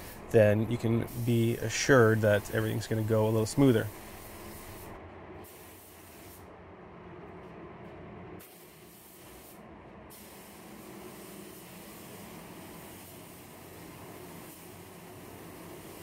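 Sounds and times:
paint spray gun hissing: 0.0 - 0.3, 1.0 - 6.4, 8.4 - 16.0.

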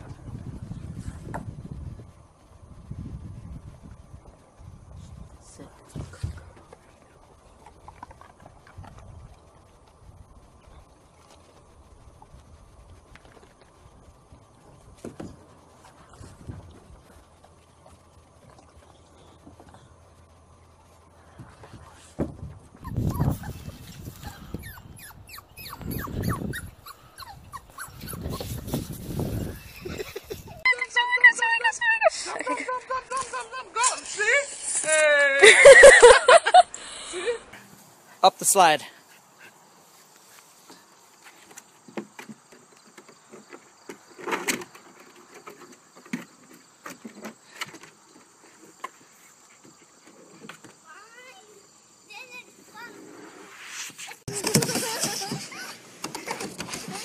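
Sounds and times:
insects chirring: 22.7 - 57.0
puppy whimpering and yipping: 22.8 - 28.7.

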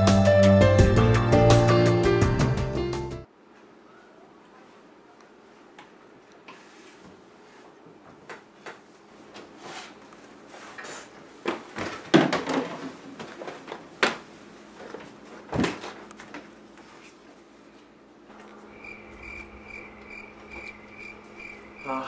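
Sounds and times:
knocks and clatters of objects: 11.4 - 16.5
faint steady hum: 16.1 - 22.0.

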